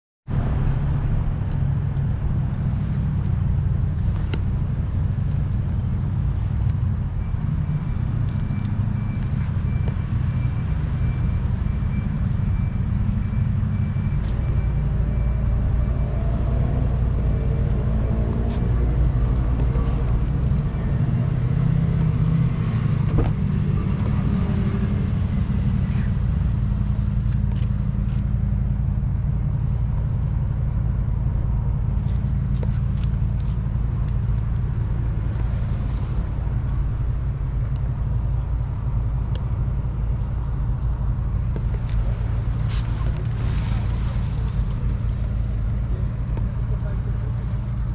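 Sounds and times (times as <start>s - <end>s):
car engine running: 16.9s - 47.9s.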